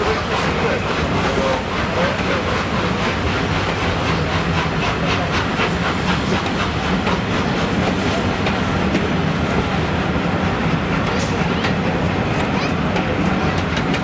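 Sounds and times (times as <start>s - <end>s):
low train rumble: 0.0s - 14.0s
train wheels clicking over rail joints: 0.0s - 14.0s.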